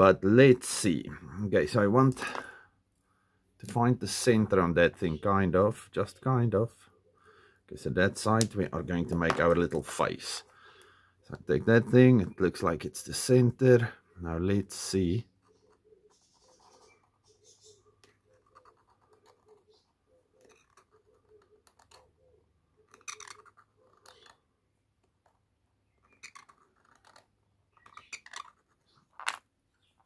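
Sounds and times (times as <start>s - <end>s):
steel scribe scraping bone: 22.8s - 24.4s, 25.8s - 29.4s.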